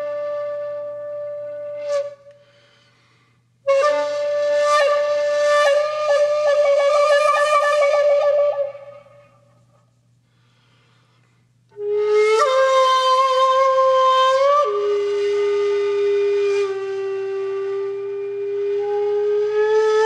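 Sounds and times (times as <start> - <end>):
solo flute notes: 0.0 - 2.9, 3.6 - 9.9, 11.7 - 20.0.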